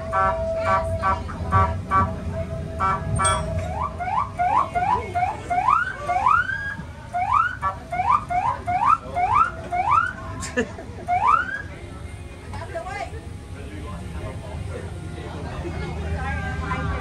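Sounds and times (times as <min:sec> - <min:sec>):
steady tone: 0:00.0 - 0:10.1
electronic siren whooping: 0:02.1 - 0:10.2.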